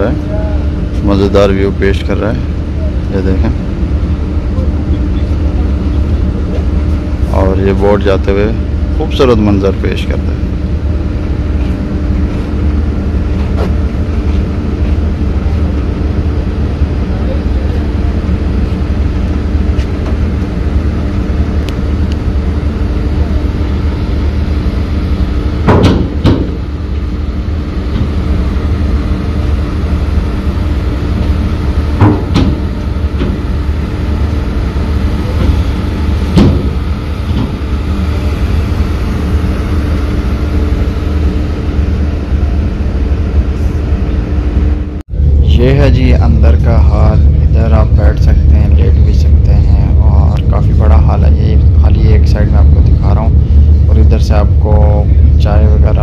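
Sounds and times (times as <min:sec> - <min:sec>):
ferry engines humming: 0:00.0 - 0:56.0
sharp metal knocks: 0:25.7 - 0:26.6, 0:32.0 - 0:33.4, 0:36.3 - 0:37.6.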